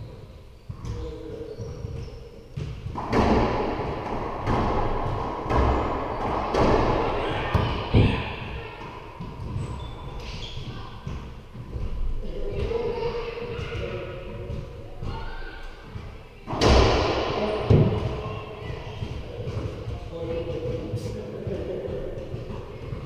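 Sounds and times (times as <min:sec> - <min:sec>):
racquetball hits echoing in court: 0:00.7 - 0:23.0.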